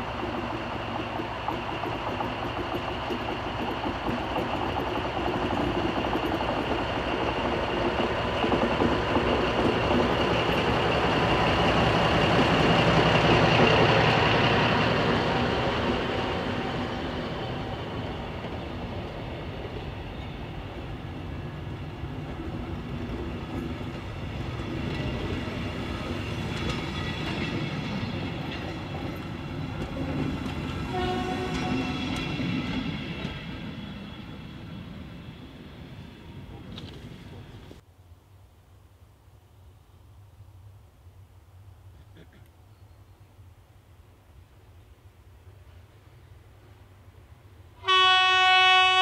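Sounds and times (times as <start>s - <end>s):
diesel locomotive engine: 0.0s - 37.8s, 40.0s - 49.0s
train wheels rumbling on rails: 0.0s - 37.8s.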